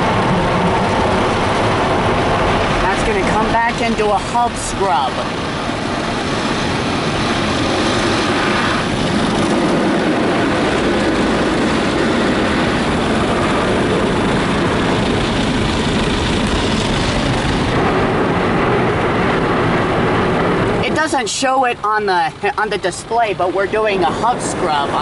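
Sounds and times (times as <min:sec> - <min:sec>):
car wash machine running: 0:00.0 - 0:21.5.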